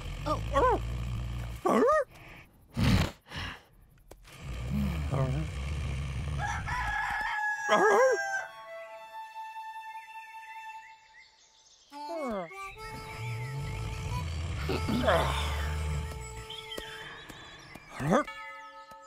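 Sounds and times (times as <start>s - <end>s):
bull snoring: 0.0s - 2.0s, 2.7s - 3.3s, 4.3s - 6.9s, 13.0s - 16.5s
rooster crowing: 6.4s - 8.7s.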